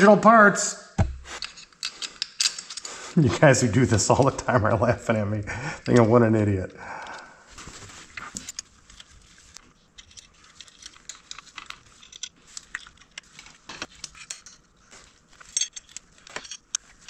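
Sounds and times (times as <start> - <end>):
tool knocking on metal: 1.0 - 1.3
paper towel rustle: 7.5 - 8.3.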